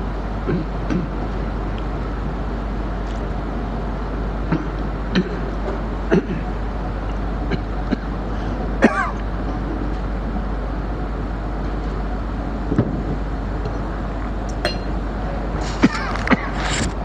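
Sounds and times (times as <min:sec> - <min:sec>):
low hum: 0:00.0 - 0:17.0
man clearing throat: 0:04.5 - 0:05.5, 0:06.1 - 0:06.5, 0:08.8 - 0:09.2.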